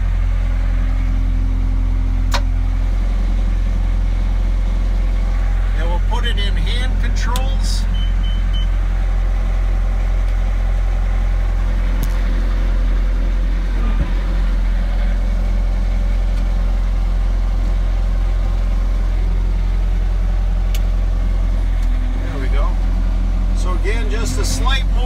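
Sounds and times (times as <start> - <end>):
diesel engine running: 0.0 - 25.0
short click in cab: 2.3 - 2.6, 20.7 - 20.9.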